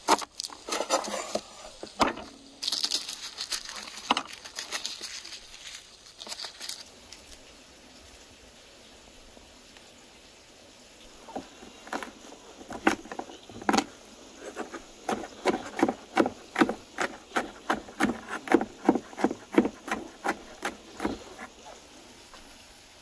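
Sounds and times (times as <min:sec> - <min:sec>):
knife chopping on wooden board: 0:12.7 - 0:21.5.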